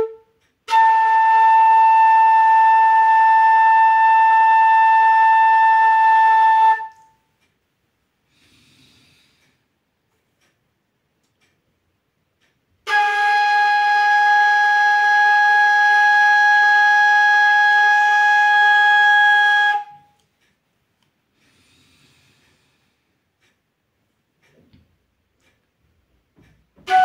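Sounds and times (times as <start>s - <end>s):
bamboo flute long note: 0.0s - 7.1s, 12.8s - 20.2s, 26.8s - 27.0s.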